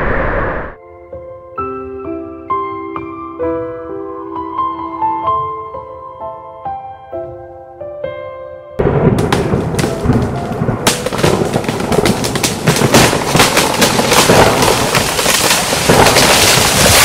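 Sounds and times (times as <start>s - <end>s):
lightning strike: 0.0s - 0.8s, 8.8s - 17.0s
crackling thunder: 8.8s - 17.0s.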